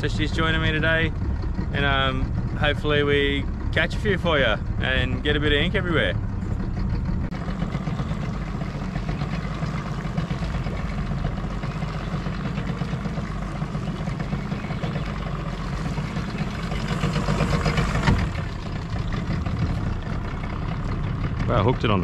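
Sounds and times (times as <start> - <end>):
boat motor humming: 0.0 - 22.0.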